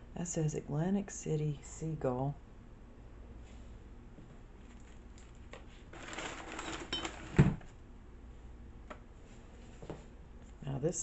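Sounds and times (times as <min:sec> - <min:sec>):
small objects rustling: 0:04.6 - 0:07.4.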